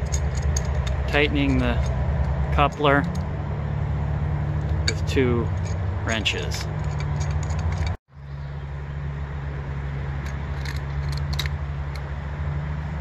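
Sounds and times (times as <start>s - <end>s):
low engine-like hum: 0.0s - 13.0s
metallic wrench clicks: 10.2s - 12.1s.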